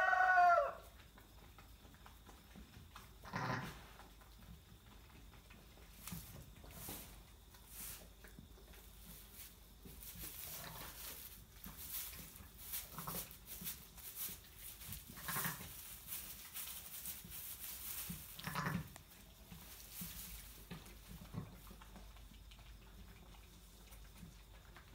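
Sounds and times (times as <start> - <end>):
soft rustling: 5.9 - 22.0.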